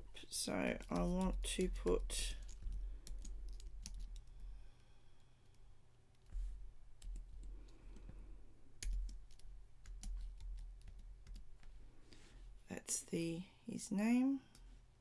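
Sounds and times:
steady low hum: 0.0 - 15.0
keyboard keys clicking: 0.8 - 4.3, 8.8 - 11.4.

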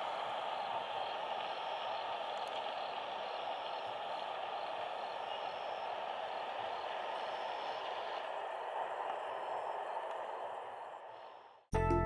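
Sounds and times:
even outdoor hiss: 0.0 - 11.6.

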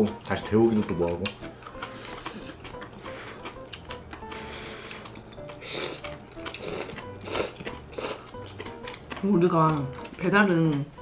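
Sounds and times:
quiet background music: 0.0 - 11.0
noodles being slurped: 1.7 - 3.6, 4.2 - 9.8.

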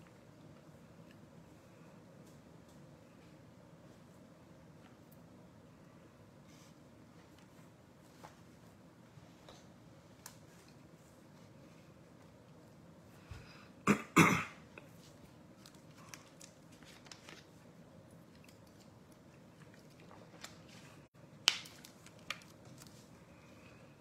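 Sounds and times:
man coughing: 13.8 - 14.6.

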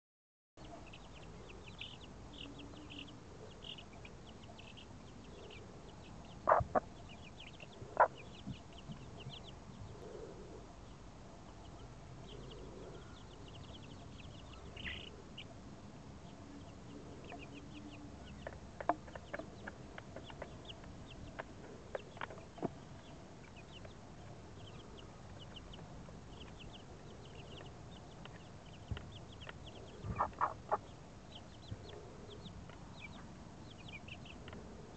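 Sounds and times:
chicks peeping: 0.6 - 34.9
hen clucking: 6.4 - 9.3, 29.4 - 31.0.

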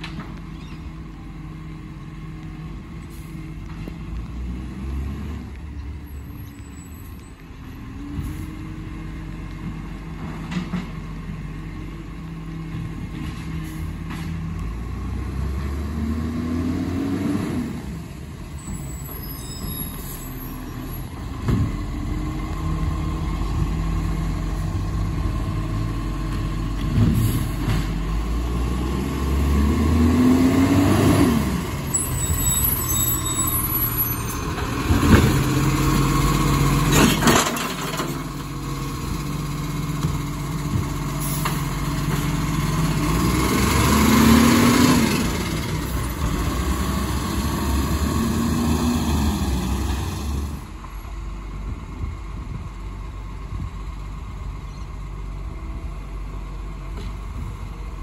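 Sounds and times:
garbage truck engine revving: 21.1 - 50.7.

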